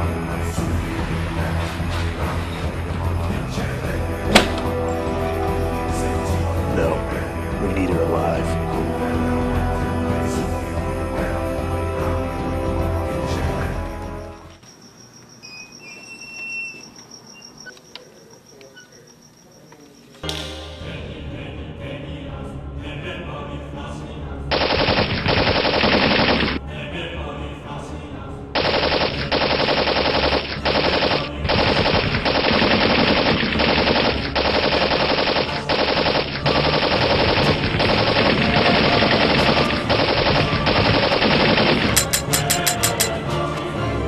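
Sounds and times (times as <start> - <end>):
loud soundtrack music: 0.4 - 14.3, 20.3 - 21.7, 28.6 - 44.0.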